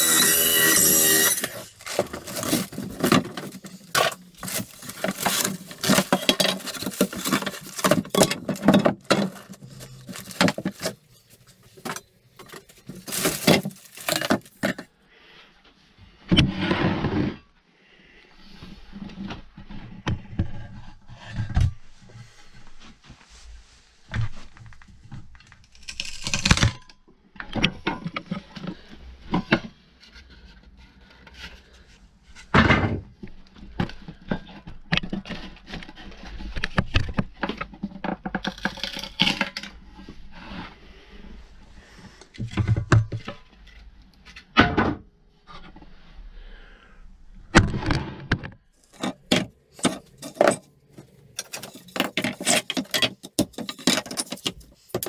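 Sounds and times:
wooden boards cracking and creaking: 0.0s - 11.1s, 11.8s - 14.9s, 25.4s - 28.9s, 33.8s - 39.8s, 47.5s - 55.0s
loose boards and metal clattering: 47.6s - 55.0s.

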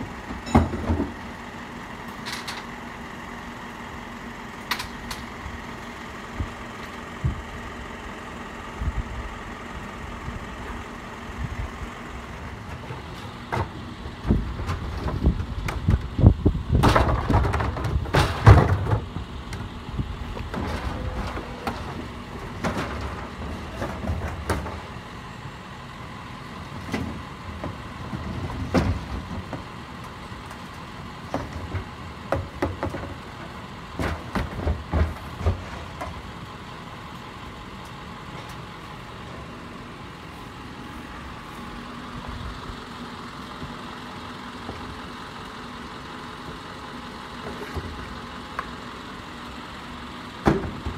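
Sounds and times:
garbage truck engine: 0.0s - 50.9s
metal clanks and knocks: 0.3s - 1.2s, 16.8s - 19.3s.

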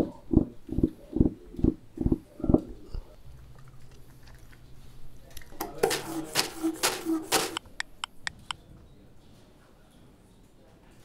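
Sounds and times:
fingertips drumming on wood: 5.8s - 8.4s.

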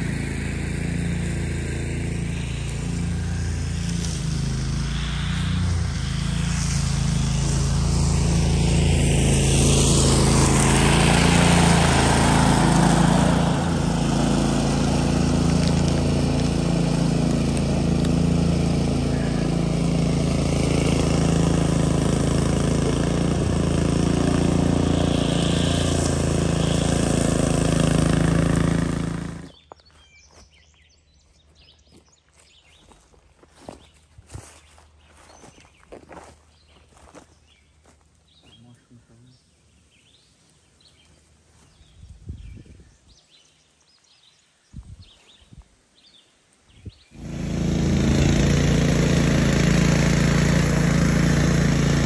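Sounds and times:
mower engine running: 0.0s - 29.6s, 47.2s - 52.0s.

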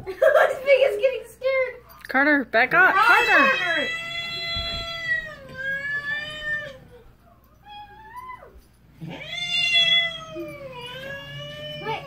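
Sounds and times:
cat meowing: 3.0s - 6.9s, 7.7s - 12.0s.

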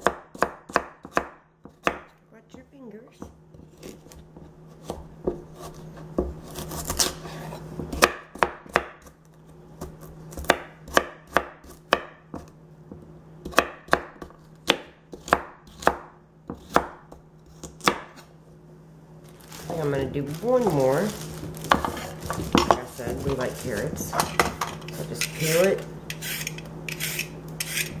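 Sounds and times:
knife chopping on wooden board: 0.0s - 2.1s, 3.2s - 7.2s, 7.8s - 9.2s, 9.8s - 18.3s, 21.7s - 23.4s.

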